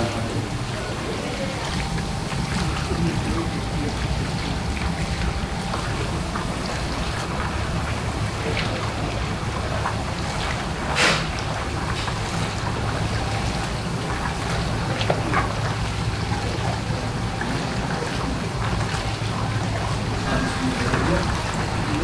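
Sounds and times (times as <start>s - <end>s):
low hum: 0.0s - 17.5s
oil sizzling and bubbling: 0.0s - 22.0s.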